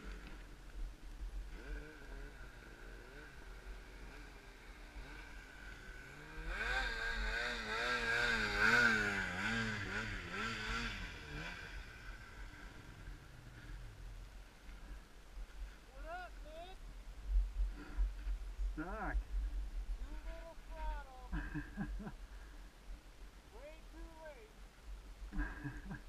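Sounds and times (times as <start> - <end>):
fainter engine running: 1.4 - 14.0
snowmobile engine revving: 1.5 - 13.9, 20.0 - 22.1.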